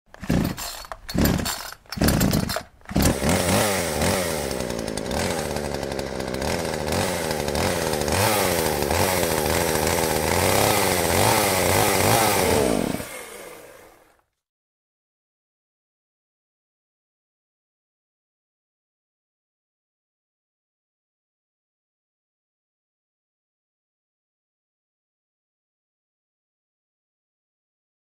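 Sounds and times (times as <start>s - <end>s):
chainsaw engine revving: 0.1s - 14.2s.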